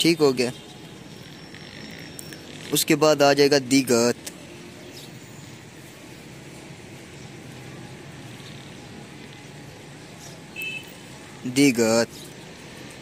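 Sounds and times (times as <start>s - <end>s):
distant road traffic hum: 0.0s - 13.0s.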